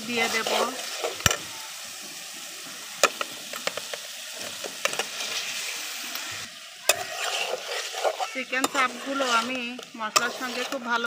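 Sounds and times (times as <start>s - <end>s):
chicken sizzling in pan: 0.0s - 11.0s
spoon knocking and scraping pan: 3.0s - 5.4s, 6.8s - 11.0s.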